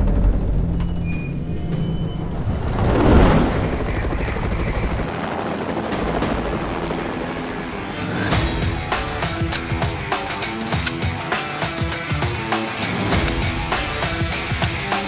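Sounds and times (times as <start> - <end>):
loud whoosh: 2.0 - 5.0.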